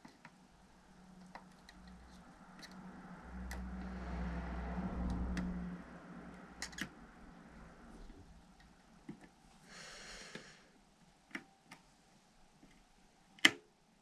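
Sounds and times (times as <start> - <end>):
low hum: 0.5 - 8.9.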